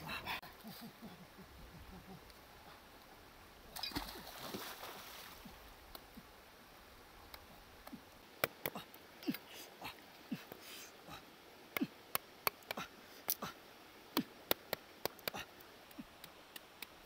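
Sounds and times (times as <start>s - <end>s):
stream flowing: 0.0s - 17.0s
rustling and splashing: 3.0s - 6.4s.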